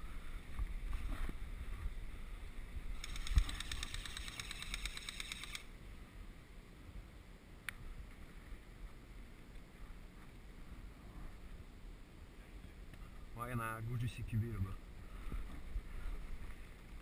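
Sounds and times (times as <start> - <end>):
airsoft rifle full-auto burst: 3.0 - 5.7
sharp click: 3.0 - 5.7.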